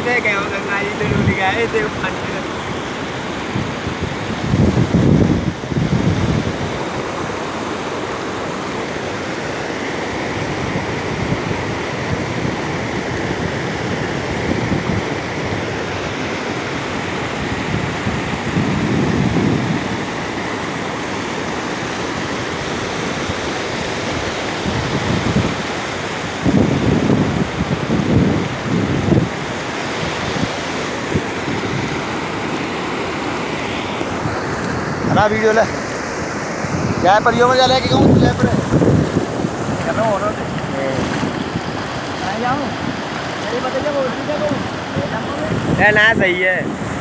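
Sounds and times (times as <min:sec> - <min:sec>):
floodwater rushing and churning: 0:00.0 - 0:47.0
wind buffeting microphone: 0:00.0 - 0:47.0.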